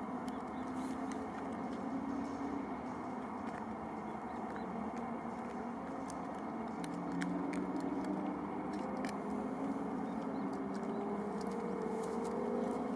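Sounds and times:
vehicle engine rumble: 0.0 - 12.9.

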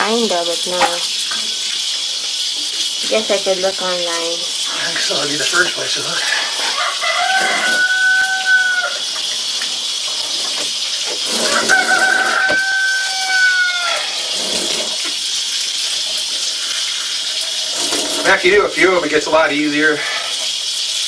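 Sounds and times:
tap water running into sink: 0.0 - 21.0
rooster crowing: 6.4 - 9.2, 11.4 - 14.4.

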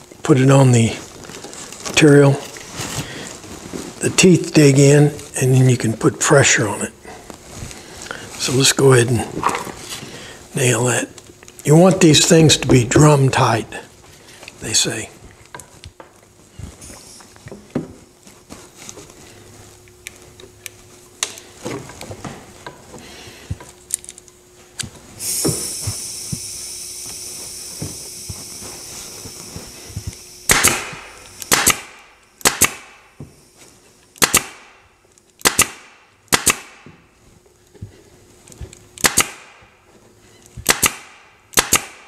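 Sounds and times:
steady high hiss: 16.4 - 37.3
staple gun snaps: 30.5 - 32.8, 34.2 - 34.6, 39.0 - 39.4, 40.7 - 42.0.

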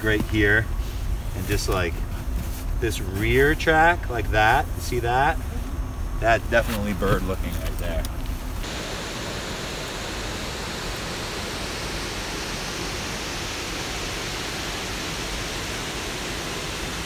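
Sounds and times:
water rushing over dam spillway: 8.6 - 17.0.

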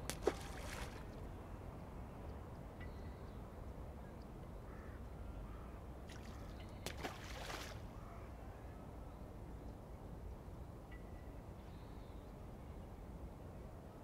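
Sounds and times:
rustling or splashing: 0.0 - 1.2.

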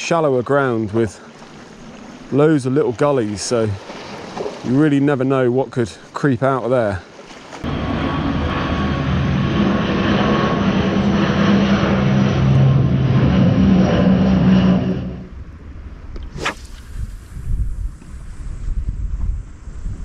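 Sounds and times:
propeller plane flying overhead: 1.2 - 2.3, 7.0 - 17.4.

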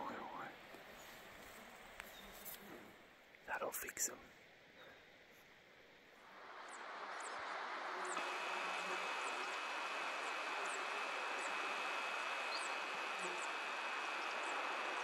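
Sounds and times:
steady hiss: 5.3 - 15.0
flies buzzing past: 6.2 - 15.0
high insect drone: 6.2 - 15.0.

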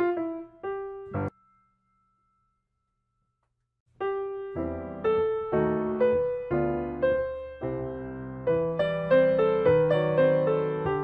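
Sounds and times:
calm piano melody: 0.0 - 1.6, 3.9 - 11.0.

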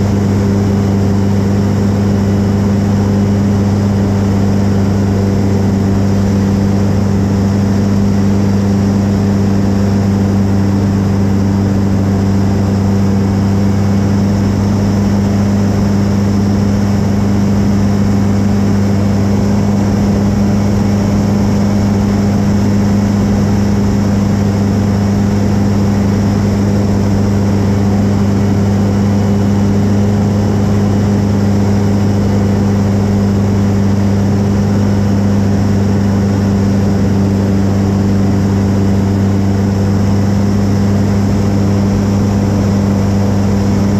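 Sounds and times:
propeller plane engine drone: 0.0 - 43.9.

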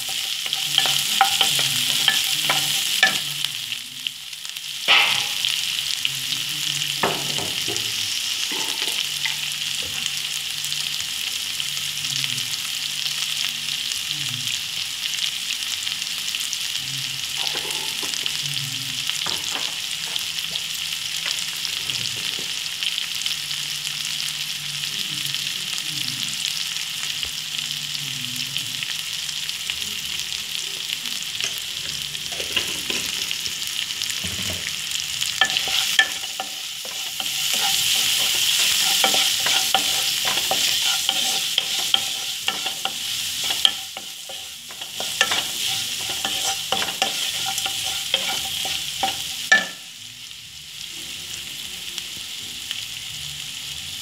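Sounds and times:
food sizzling in hot oil: 0.0 - 54.0
wooden spatula scraping pan: 35.4 - 49.3.

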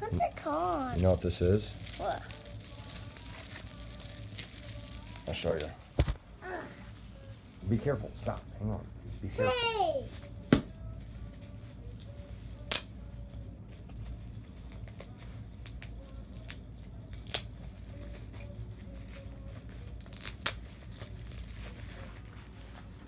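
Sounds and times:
low room hum: 0.0 - 23.0
packaging ripping and crackling: 0.7 - 6.2, 14.8 - 17.5, 19.8 - 22.3.

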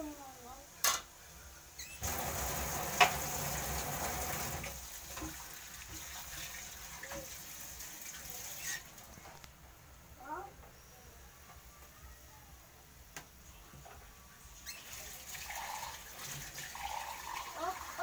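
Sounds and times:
water running: 2.0 - 9.5, 14.6 - 18.0.

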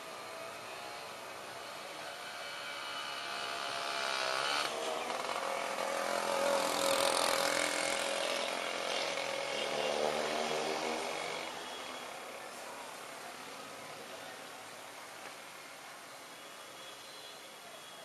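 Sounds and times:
small engine passing by: 0.2 - 11.6.

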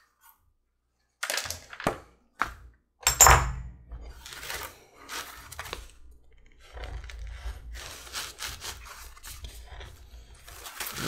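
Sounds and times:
knife cutting leather: 4.0 - 11.0.

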